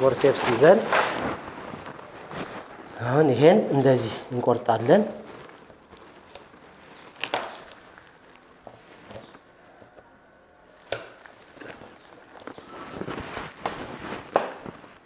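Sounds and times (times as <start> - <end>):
cutters cracking fish bone: 7.1 - 7.9, 10.8 - 11.5.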